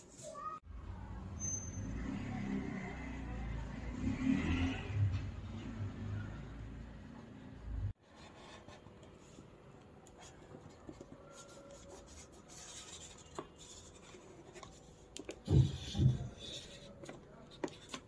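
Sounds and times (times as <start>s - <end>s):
marker pen scratching on paper: 10.2s - 18.0s.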